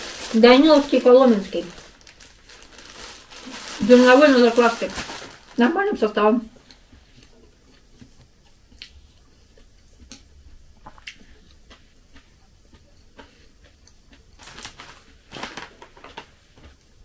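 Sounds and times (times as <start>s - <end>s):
chewing and mouth sounds: 6.6s - 14.3s.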